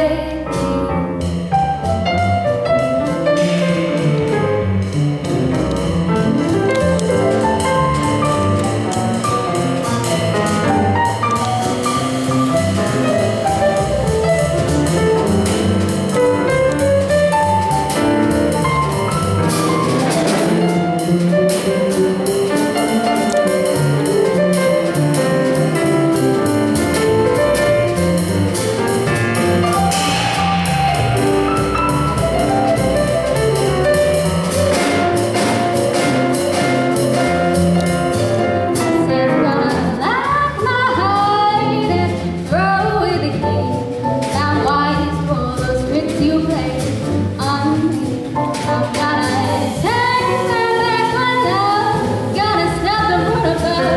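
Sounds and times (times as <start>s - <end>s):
double bass: 0.0s - 53.9s
jazz piano: 0.0s - 53.9s
woman singing: 39.1s - 43.8s, 48.7s - 53.9s.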